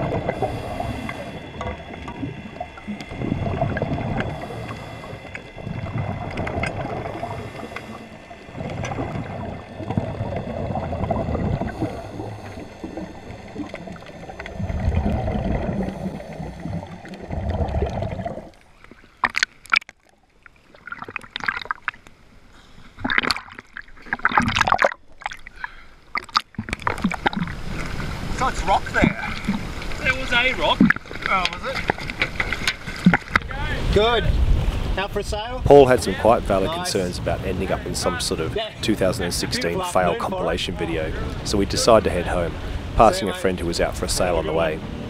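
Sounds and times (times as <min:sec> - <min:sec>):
underwater bubbles gurgling: 0:00.0 - 0:35.0
water splashing and sloshing: 0:00.0 - 0:45.0.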